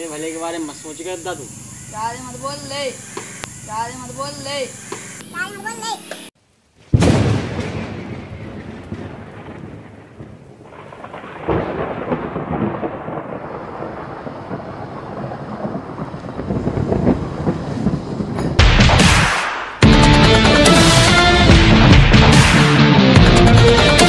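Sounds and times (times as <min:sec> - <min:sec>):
thunder rumble: 0:06.9 - 0:22.6.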